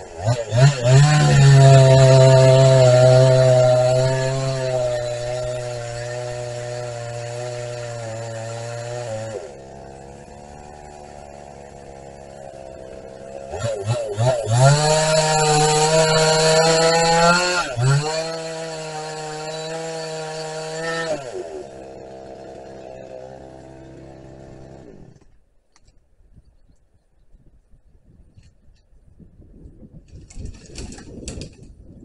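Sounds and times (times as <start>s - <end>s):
chainsaw running and cutting: 0.0s - 25.4s.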